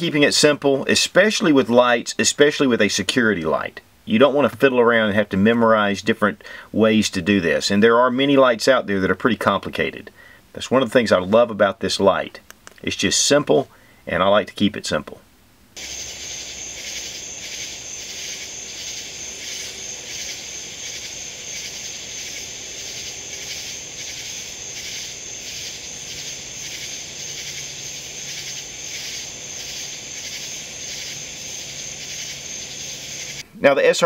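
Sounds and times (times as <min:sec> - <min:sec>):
night insects chirring: 0:15.8 - 0:33.4.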